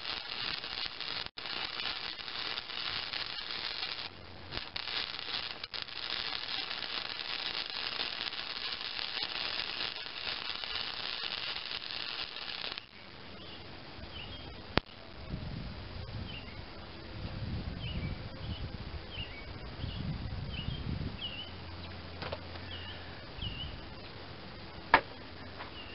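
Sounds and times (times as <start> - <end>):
welding arc crackling: 0.0 - 13.2, 14.7 - 15.0.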